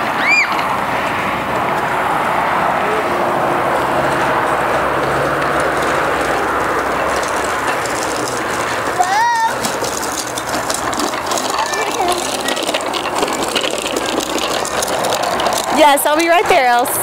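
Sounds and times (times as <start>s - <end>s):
steady rushing noise: 0.0s - 17.0s
child squealing: 0.2s - 0.6s, 9.0s - 9.6s.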